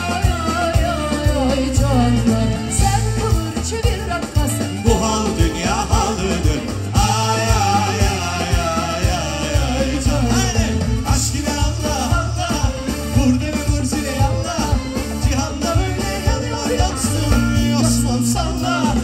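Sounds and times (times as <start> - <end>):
man singing: 0.0 - 3.3, 4.8 - 19.0
live pop band playing: 0.0 - 19.0.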